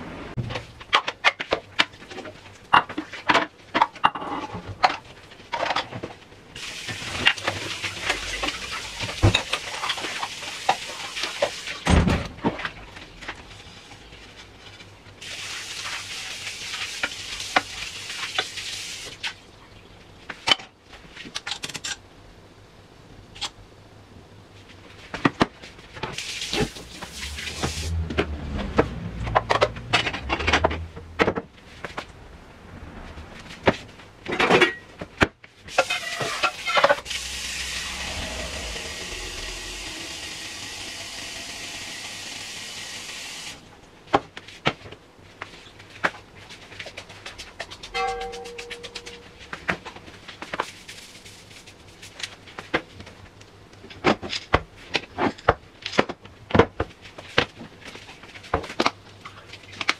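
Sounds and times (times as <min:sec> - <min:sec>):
tap water running: 0:06.6 - 0:11.9, 0:15.2 - 0:19.4, 0:26.2 - 0:28.0, 0:35.7 - 0:43.6.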